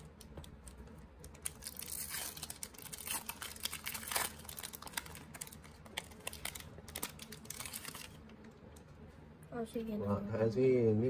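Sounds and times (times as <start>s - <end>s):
cards and foil wrapper crinkling: 0.0s - 8.8s.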